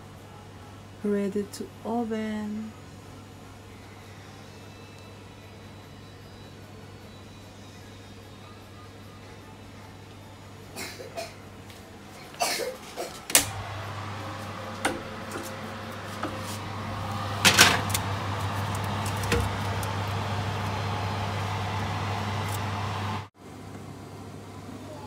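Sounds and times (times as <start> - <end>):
steady low hum: 13.4 - 24.5
metal baking tray scraping: 15.3 - 16.6
oven door clunks: 17.4 - 18.1, 19.2 - 19.6.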